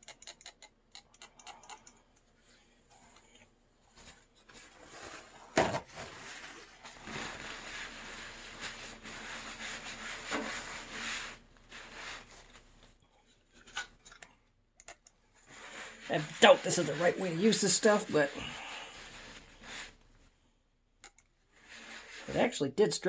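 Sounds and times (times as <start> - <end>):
paper towel scrubbing metal: 5.9 - 12.8, 15.5 - 20.0, 21.6 - 22.5.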